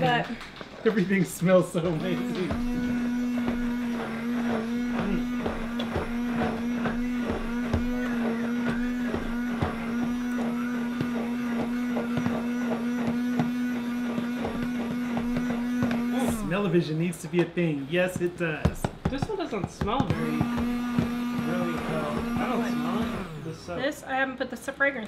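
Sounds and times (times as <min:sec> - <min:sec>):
stick blender motor hum: 0:00.9 - 0:23.9.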